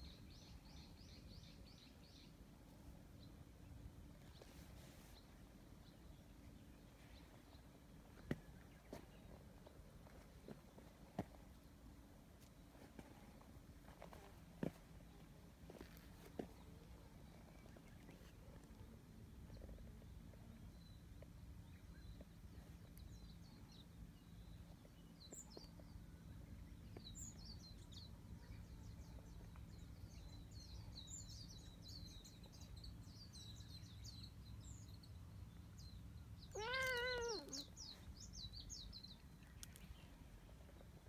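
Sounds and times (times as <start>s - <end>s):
low steady outdoor rumble: 0.0s - 41.0s
small birds chirping: 14.0s - 41.0s
cat meowing: 36.5s - 37.7s.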